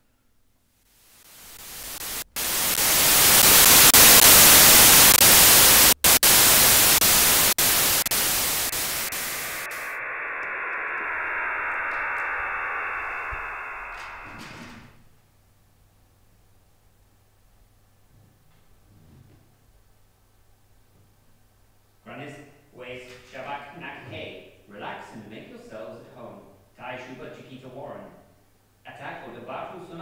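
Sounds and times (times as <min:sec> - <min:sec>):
static-like teleport hiss: 0:01.0 - 0:14.9
soft rushing sound: 0:07.6 - 0:14.9.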